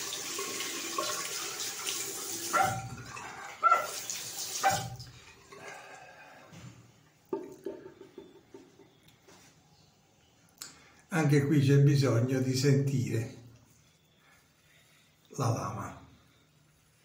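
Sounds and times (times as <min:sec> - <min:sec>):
water running from sink tap: 0:00.0 - 0:05.6.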